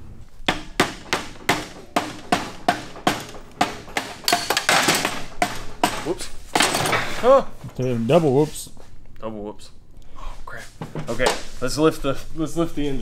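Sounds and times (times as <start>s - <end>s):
mallet hammering: 0.4s - 6.8s.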